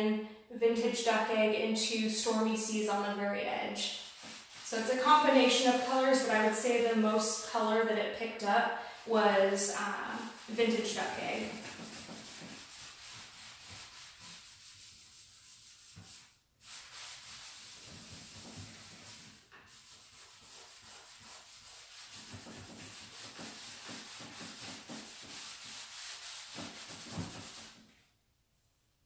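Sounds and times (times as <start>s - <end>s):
cloth scrubbing wax into wood: 3.9s - 6.9s, 9.5s - 27.9s.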